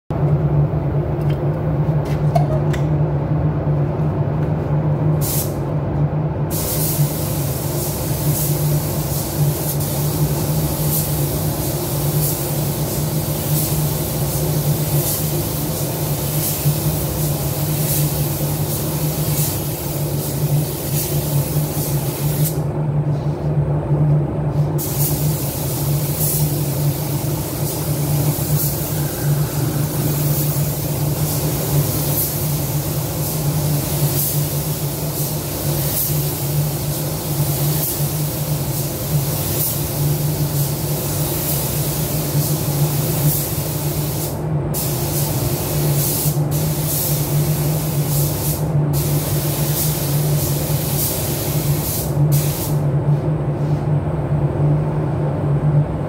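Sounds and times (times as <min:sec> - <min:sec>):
low machine hum: 0:00.1 - 0:06.5
paint spray gun hissing: 0:24.8 - 0:52.8.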